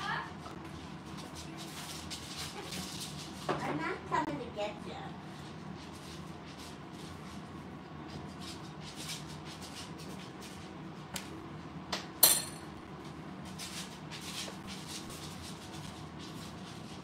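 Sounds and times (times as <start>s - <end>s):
beak clinking metal bowl: 12.2s - 12.6s.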